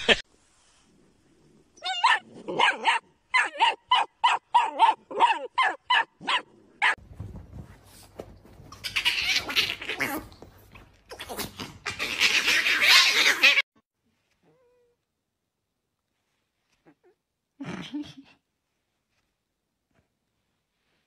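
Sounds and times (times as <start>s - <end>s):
dog yapping: 1.8s - 7.0s.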